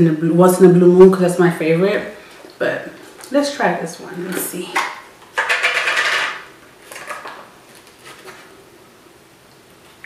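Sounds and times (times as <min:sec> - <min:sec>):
lid scraping rustle: 0:04.2 - 0:08.6.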